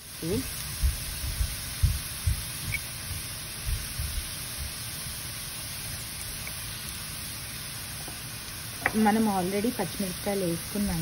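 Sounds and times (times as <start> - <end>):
onions sizzling in oil: 0.0 - 11.0
dull low bumps: 0.8 - 4.7.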